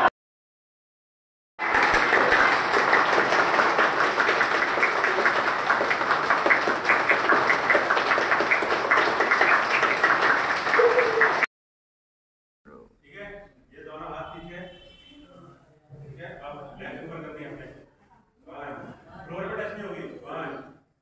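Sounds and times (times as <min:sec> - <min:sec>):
group clapping: 0:01.6 - 0:11.5.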